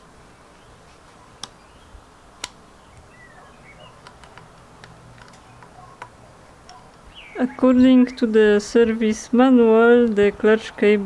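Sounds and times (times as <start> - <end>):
small metallic clicks: 3.8 - 7.0.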